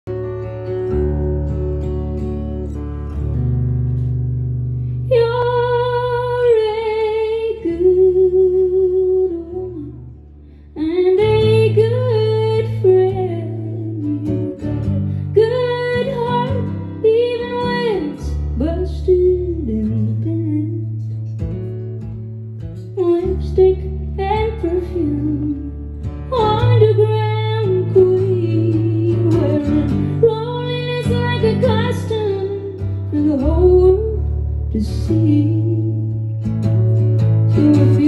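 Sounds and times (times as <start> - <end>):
acoustic guitar: 0.0 - 38.0
woman singing: 5.0 - 21.2, 22.9 - 36.4, 37.5 - 38.0.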